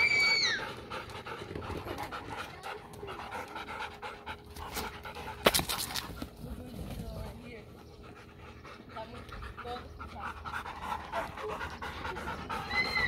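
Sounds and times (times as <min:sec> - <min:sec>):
dog panting: 0:00.5 - 0:13.0.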